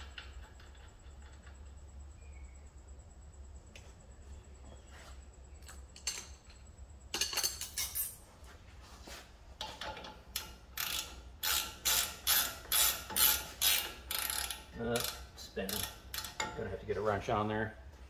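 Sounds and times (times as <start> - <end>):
hand ratchet clicking: 10.3 - 16.5.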